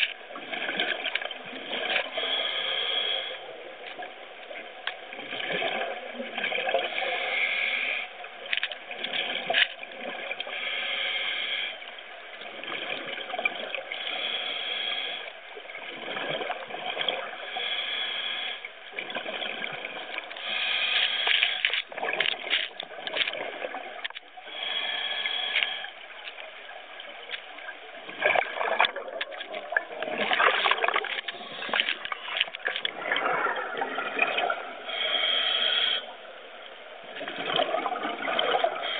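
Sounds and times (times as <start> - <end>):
scuba regulator breathing underwater: 1.7 - 3.6, 6.8 - 8.2, 10.4 - 11.9, 13.9 - 15.4, 17.4 - 18.7, 20.4 - 21.8, 24.4 - 26.4, 30.2 - 36.4, 38.2 - 38.9.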